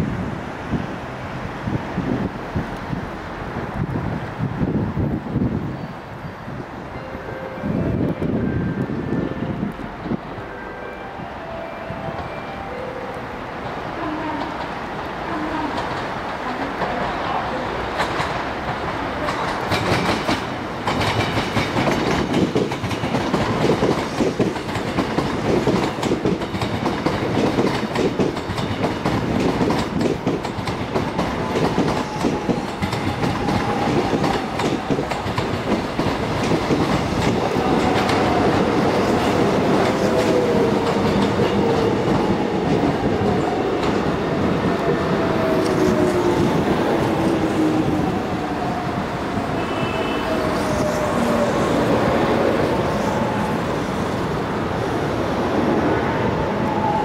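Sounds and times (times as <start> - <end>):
train wheels clattering over rail joints: 18.0 - 44.1.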